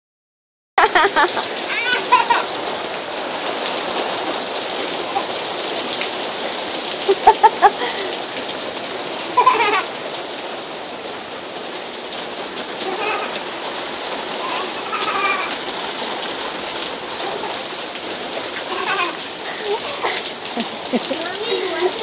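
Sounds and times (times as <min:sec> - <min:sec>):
rain on concrete: 0:00.8 - 0:22.0
child calling out: 0:01.3 - 0:02.6, 0:12.8 - 0:13.4, 0:14.4 - 0:15.6, 0:18.7 - 0:20.2, 0:21.2 - 0:22.0.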